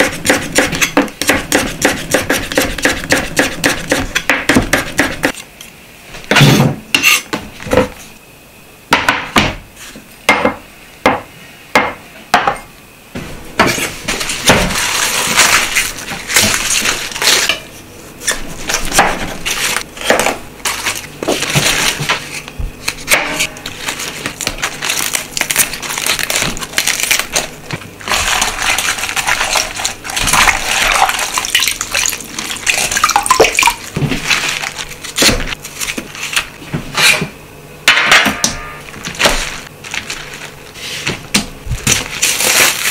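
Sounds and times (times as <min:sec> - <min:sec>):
cabbage leaves snapping: 0:41.9 - 0:42.9.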